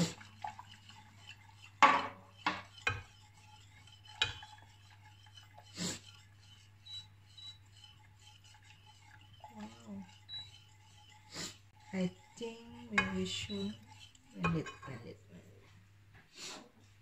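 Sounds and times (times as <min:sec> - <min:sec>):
spoon scraping a saucepan: 0:00.0 - 0:15.6.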